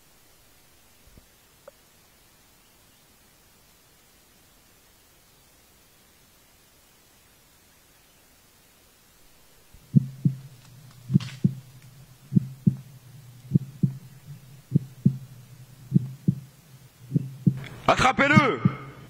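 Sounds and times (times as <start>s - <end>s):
low steady hum: 0.0s - 19.0s
heartbeat thumps: 9.8s - 19.0s.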